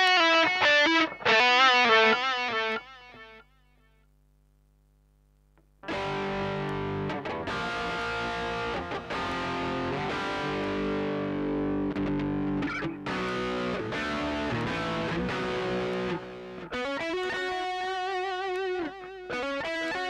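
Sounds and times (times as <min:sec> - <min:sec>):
distorted electric guitar: 0:00.0 - 0:04.6, 0:05.2 - 0:20.0
faint hum: 0:02.5 - 0:08.2.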